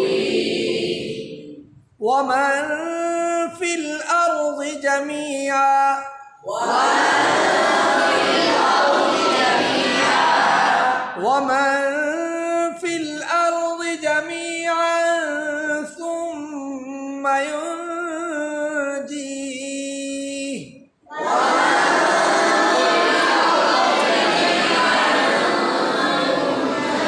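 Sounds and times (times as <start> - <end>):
group reciting in unison: 0.0 - 2.8, 3.6 - 13.1, 20.4 - 27.0
man chanting melodically: 2.0 - 6.4, 11.1 - 20.9.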